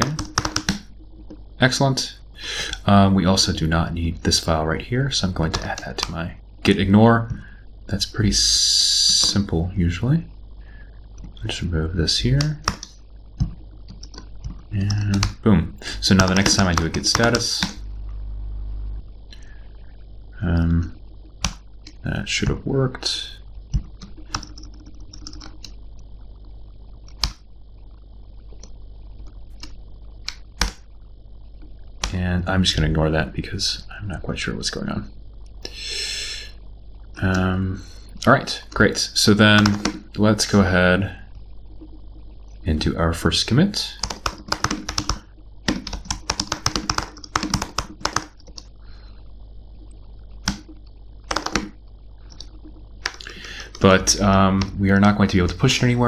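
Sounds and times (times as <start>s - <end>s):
computer keyboard keystrokes: 0.0s - 1.4s, 12.4s - 15.4s, 16.2s - 17.8s, 23.7s - 25.7s, 27.1s - 27.4s, 29.6s - 30.8s, 39.6s - 40.0s, 44.0s - 48.7s, 50.4s - 53.8s.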